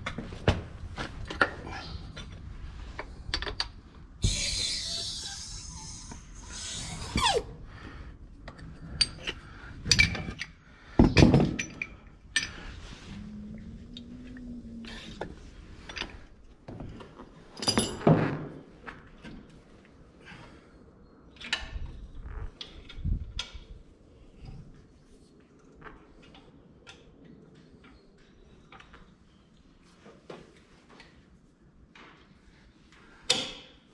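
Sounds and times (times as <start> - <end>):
metal clunks and clinks: 17.6 - 18.2.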